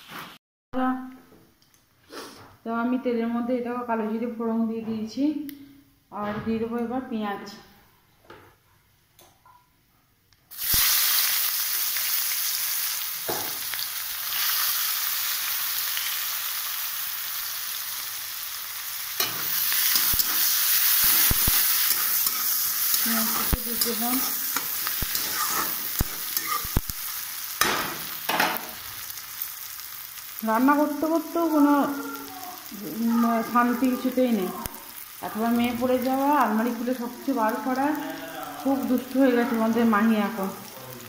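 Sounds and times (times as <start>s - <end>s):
onion sizzling in hot oil: 10.5s - 41.0s
spatula scraping a metal pan: 19.2s - 26.8s.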